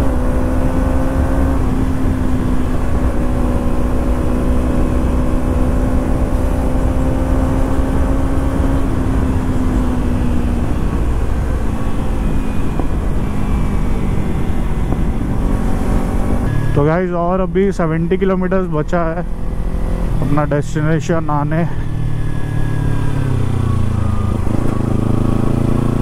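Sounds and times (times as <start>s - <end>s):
motorcycle engine cruising: 0.0s - 26.0s
wind rush on microphone: 8.9s - 16.5s.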